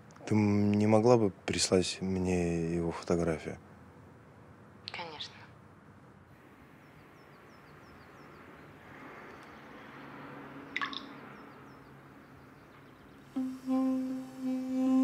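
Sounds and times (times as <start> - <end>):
soft hiss: 13.2 - 15.0.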